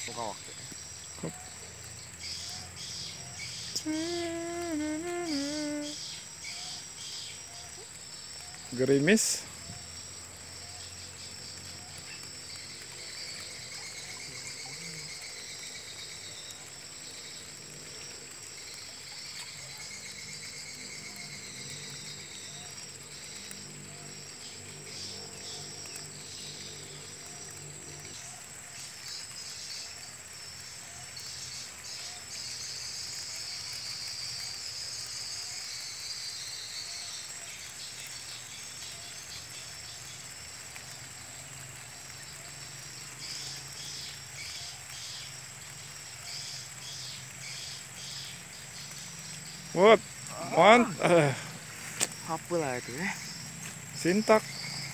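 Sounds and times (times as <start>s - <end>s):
insects chirring: 0.0s - 54.9s.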